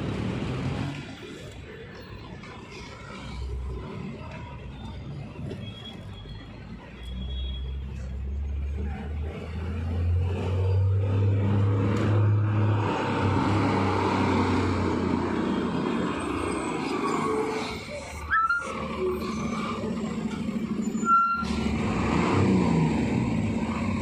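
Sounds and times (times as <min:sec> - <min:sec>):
street traffic noise: 0:00.0 - 0:24.0
vehicle engine humming: 0:07.9 - 0:24.0.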